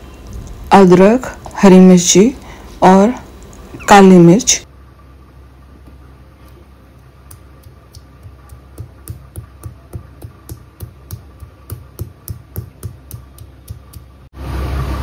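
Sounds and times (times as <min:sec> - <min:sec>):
pestle pounding in a mortar: 0:07.3 - 0:14.2.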